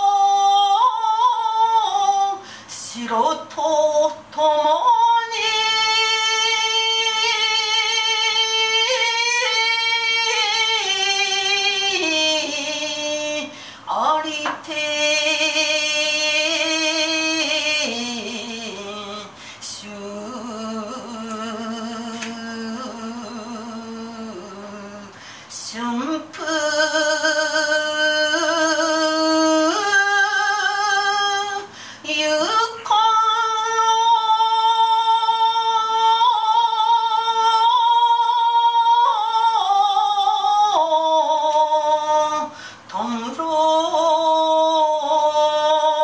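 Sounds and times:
woman chanting unaccompanied: 0.0s - 46.0s.

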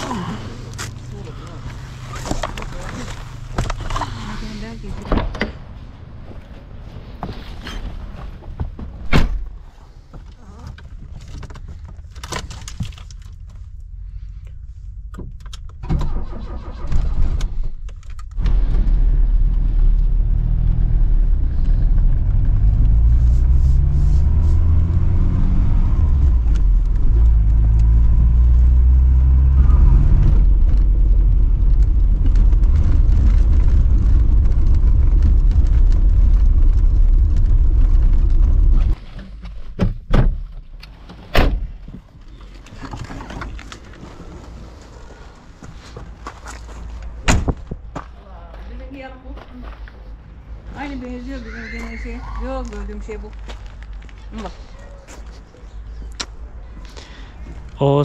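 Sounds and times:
car engine cranking and running: 10.8s - 39.0s.

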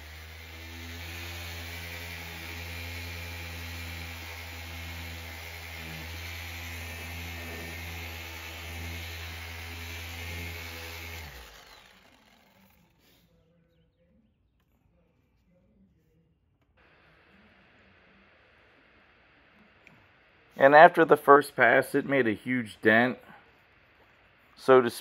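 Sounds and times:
polisher motor humming and whining: 0.0s - 12.9s
motor winding down: 0.0s - 13.1s.

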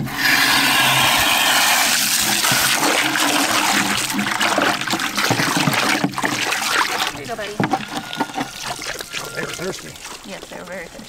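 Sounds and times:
hose water splashing into bucket: 0.0s - 11.0s.

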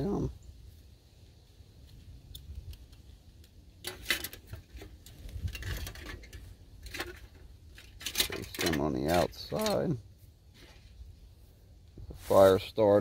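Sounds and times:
metal clicks and clinks: 3.8s - 9.9s.

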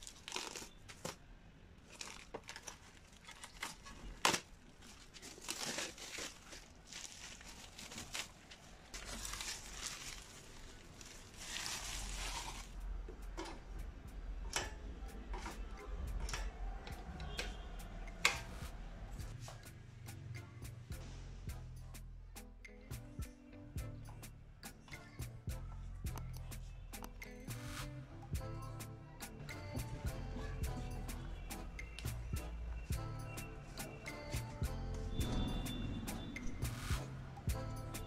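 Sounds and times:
plastic wrap crinkling and tearing: 0.0s - 12.8s.

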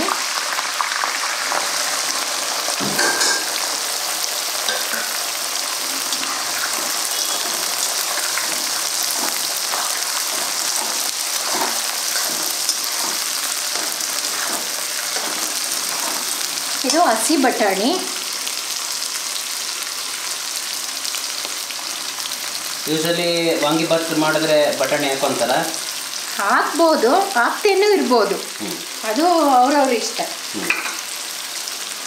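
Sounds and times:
onions sizzling in oil: 0.0s - 32.0s
metal ladle scraping pan: 5.9s - 17.0s.

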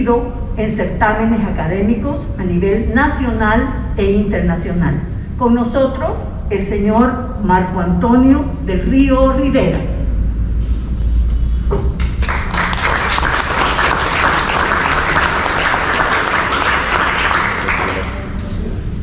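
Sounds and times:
audience applauding: 12.0s - 18.6s.

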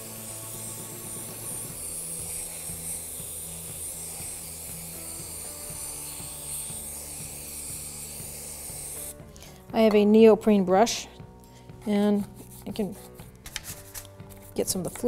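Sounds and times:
aerosol can spraying hiss: 0.0s - 9.3s
background music with steady beat: 0.0s - 15.0s.

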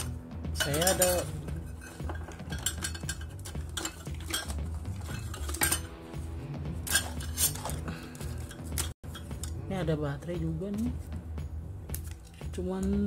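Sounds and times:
small hard objects clinking: 0.0s - 6.0s.

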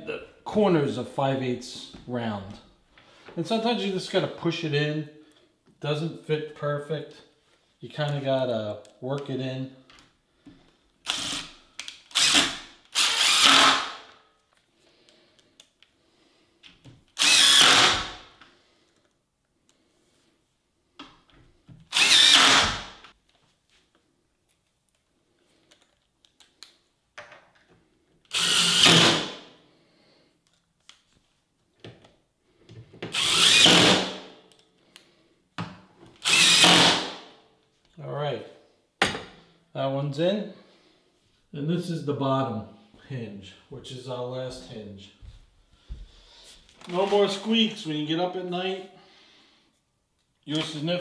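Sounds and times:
impact driver driving screws: 11.0s - 14.2s, 17.1s - 18.3s, 21.8s - 23.1s, 28.3s - 29.4s, 33.1s - 34.3s, 36.2s - 37.2s.

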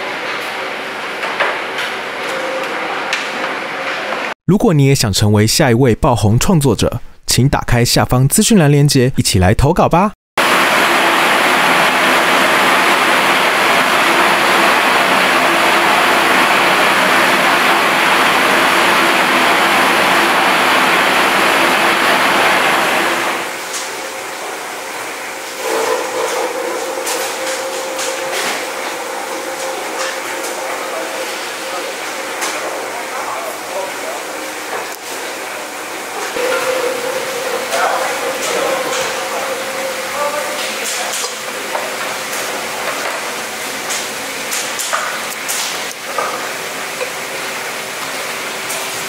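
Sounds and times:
machine hum and hiss: 10.4s - 49.0s.

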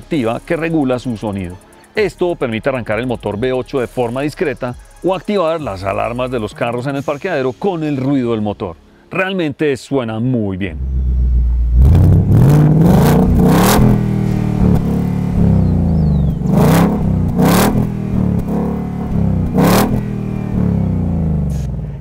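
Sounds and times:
car engine revving: 10.7s - 22.0s.

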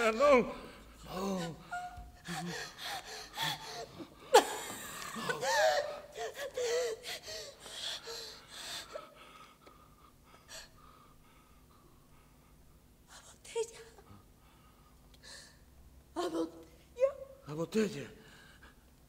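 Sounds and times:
woman gasping and crying out: 1.1s - 4.5s, 5.2s - 9.1s.

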